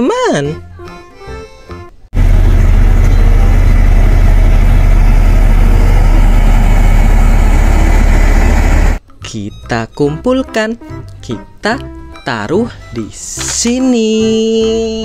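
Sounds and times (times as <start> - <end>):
road roller engine rumble: 2.2 - 9.0.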